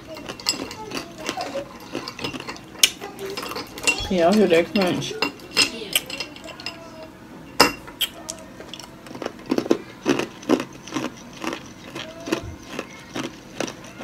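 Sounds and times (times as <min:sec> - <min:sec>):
chewing crunchy food: 0:00.0 - 0:04.0, 0:08.0 - 0:14.0.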